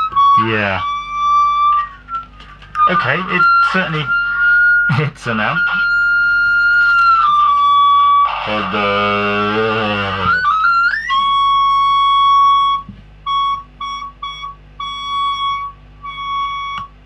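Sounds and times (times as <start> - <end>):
feedback whistle: 0.0 - 17.0
amplified voice: 2.9 - 4.2, 8.4 - 10.5.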